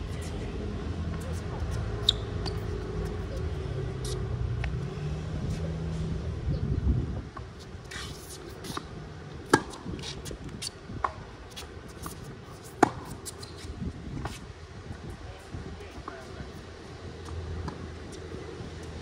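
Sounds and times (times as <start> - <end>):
low traffic rumble: 0.0 - 19.0
racquet hitting tennis ball: 9.4 - 9.9.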